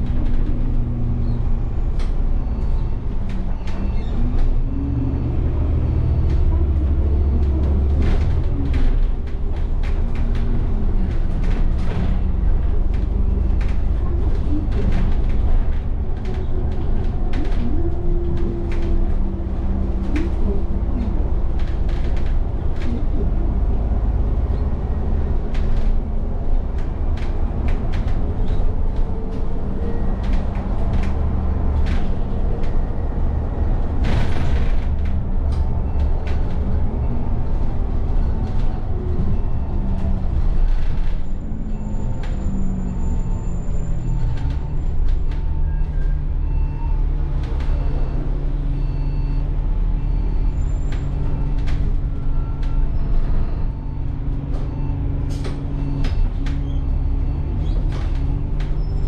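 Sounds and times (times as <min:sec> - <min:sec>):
bus engine rumble and whine: 0:00.0 - 0:59.0
body clicks and rattles: 0:06.3 - 0:41.4.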